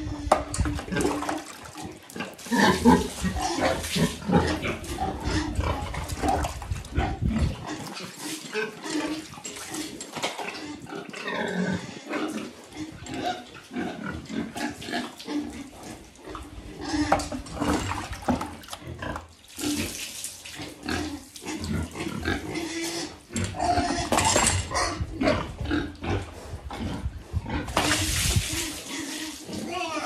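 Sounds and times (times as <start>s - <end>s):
pig grunting: 0.0s - 9.8s
water poured from bucket: 0.5s - 6.9s, 17.2s - 22.0s, 27.7s - 29.8s.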